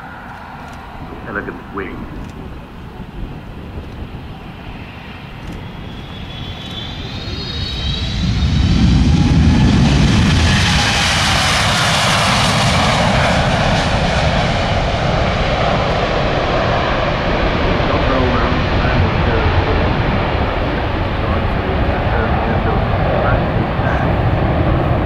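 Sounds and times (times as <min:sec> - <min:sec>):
high engine whine falling in pitch: 0:00.0 - 0:13.0
jet engines at takeoff: 0:00.0 - 0:25.0.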